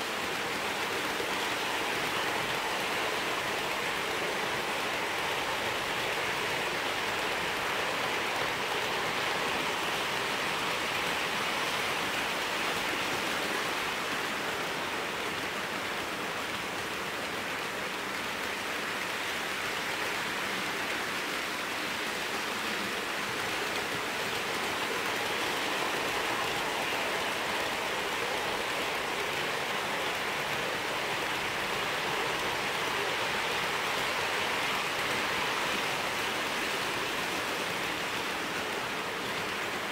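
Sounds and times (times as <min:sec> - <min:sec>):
model train wheels on rails: 0:00.0 - 0:39.9.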